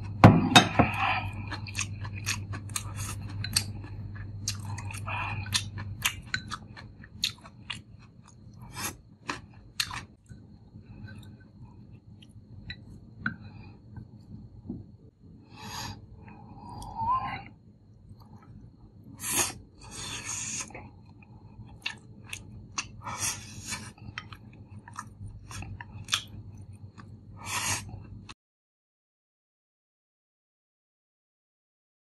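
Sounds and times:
person chewing: 0:00.8 - 0:13.7, 0:19.2 - 0:28.4.

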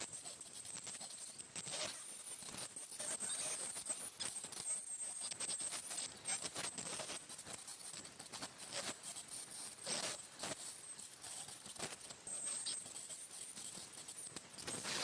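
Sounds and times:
thin high whine: 0:00.0 - 0:15.0.

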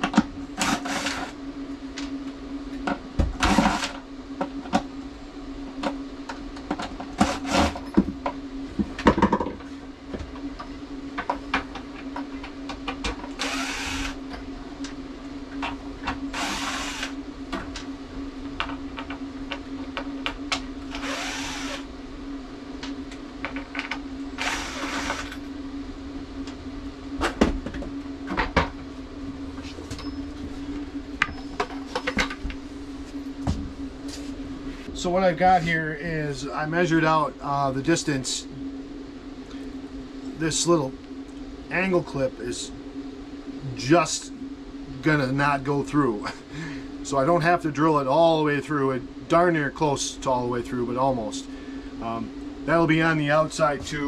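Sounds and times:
steady hum: 0:00.0 - 0:54.0
cordless drill driving screws: 0:00.6 - 0:01.3, 0:13.4 - 0:14.2, 0:16.3 - 0:17.1, 0:20.9 - 0:21.8, 0:24.4 - 0:25.3.

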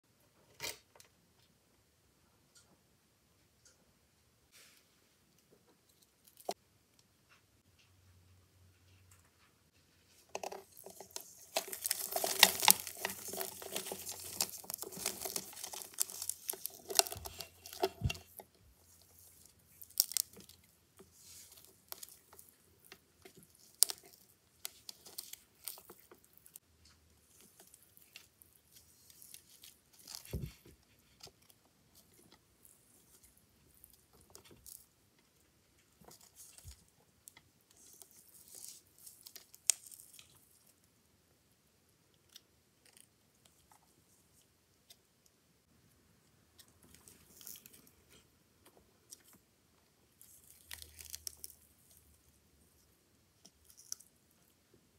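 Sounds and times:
insect body crackling and crunching: 0:10.3 - 0:26.6, 0:27.2 - 0:34.9, 0:36.0 - 0:36.9, 0:37.7 - 0:40.7, 0:46.8 - 0:48.0, 0:50.2 - 0:52.1, 0:53.4 - 0:54.1.

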